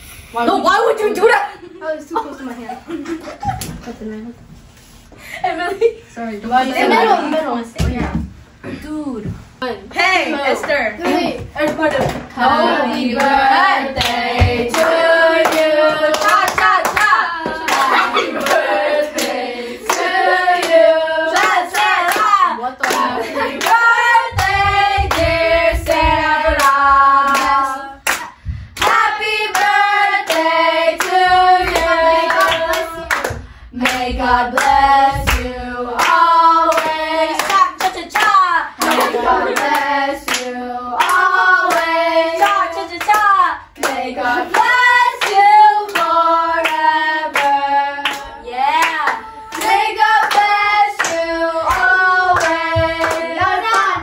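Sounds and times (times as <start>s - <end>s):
girls singing together: 10.4s - 54.0s
hands clapping along: 14.0s - 20.8s, 21.4s - 46.8s, 47.4s - 54.0s.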